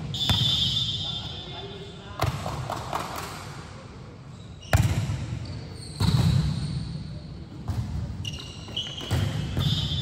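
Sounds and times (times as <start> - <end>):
thump with high squeak: 4.6 - 6.9.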